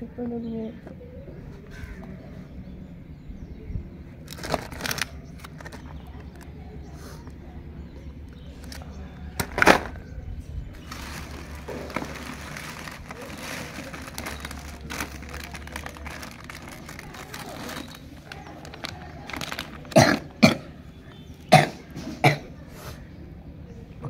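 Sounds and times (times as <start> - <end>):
plastic packaging crinkling: 4.3 - 6.4, 8.6 - 9.9, 10.8 - 20.3
boy coughing: 19.9 - 20.7.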